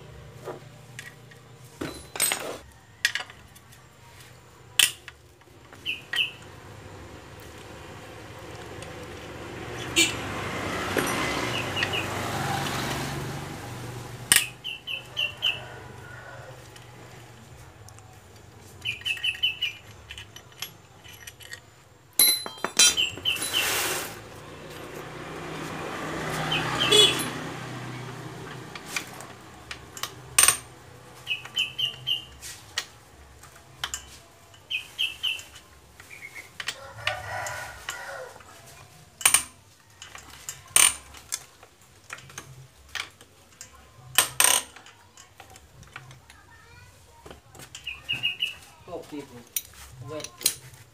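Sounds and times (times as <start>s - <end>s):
high bird chirps: 5.8s - 6.5s, 18.8s - 19.9s, 31.3s - 32.4s, 34.7s - 36.5s, 47.8s - 48.7s.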